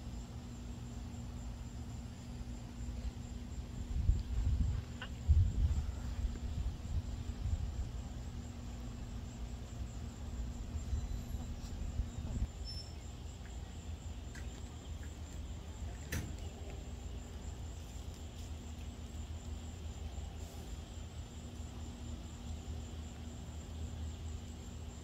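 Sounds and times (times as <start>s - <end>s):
high insect trill: 0.0s - 25.0s
low microphone rumble: 3.6s - 8.1s.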